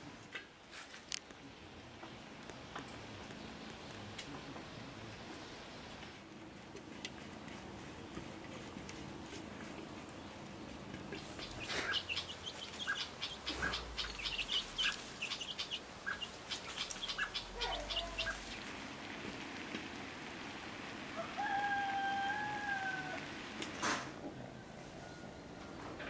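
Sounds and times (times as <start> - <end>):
chickens chirping and clucking: 9.3 - 18.8.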